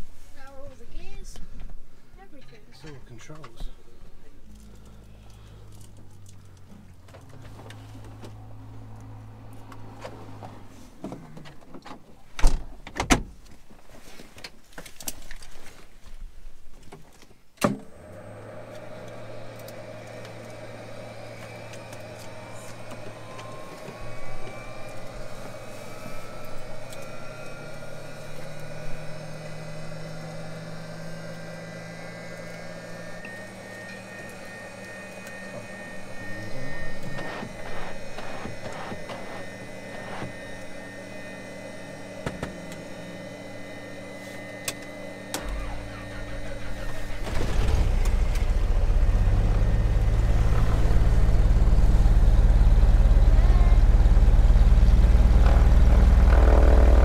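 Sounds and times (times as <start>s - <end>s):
rising whine: 2.8s - 11.5s, 17.8s - 57.0s
steady hum: 18.1s - 57.0s.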